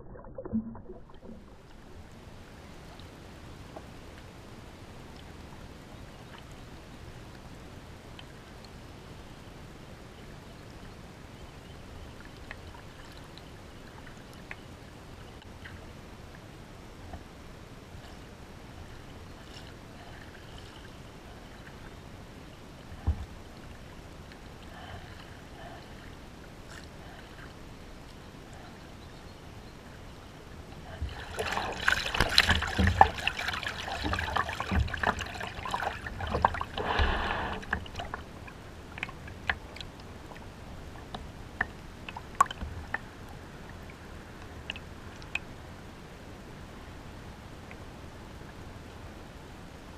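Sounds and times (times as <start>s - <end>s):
water splashing against kayak: 30.4s - 43.2s.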